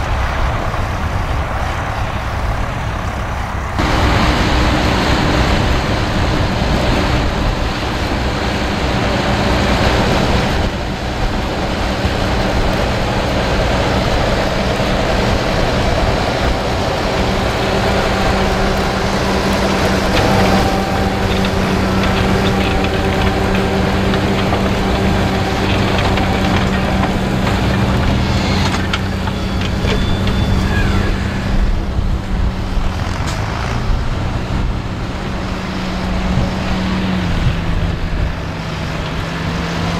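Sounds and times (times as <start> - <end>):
tractor diesel engine under load: 0.0 - 39.9.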